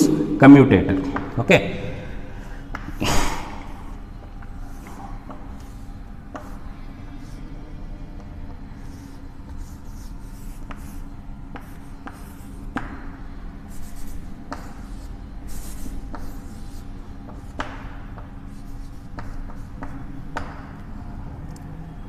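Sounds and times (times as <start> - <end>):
low room hum: 0.0 - 22.0
chalk tapping on board: 4.3 - 6.6, 9.5 - 20.7
chalk scratching on chalkboard: 4.5 - 7.5, 8.2 - 20.7.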